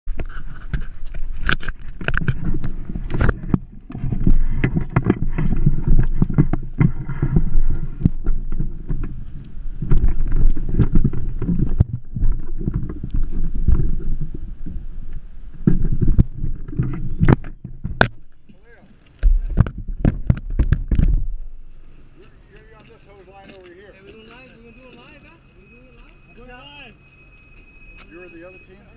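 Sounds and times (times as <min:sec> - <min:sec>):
camera handling rumble and knocks: 0:00.1 - 0:14.8, 0:15.6 - 0:18.4, 0:19.2 - 0:21.5.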